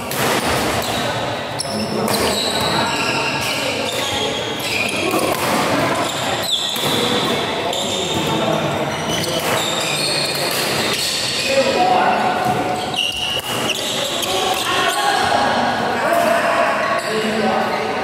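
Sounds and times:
racket hitting shuttlecock: 0:00.0 - 0:01.0.

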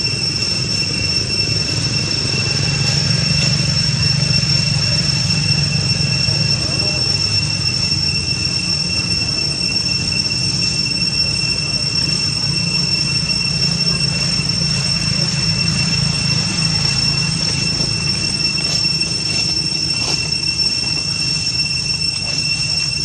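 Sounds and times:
constant low rumble: 0:00.0 - 0:23.0
high-pitched whine: 0:00.0 - 0:23.0.

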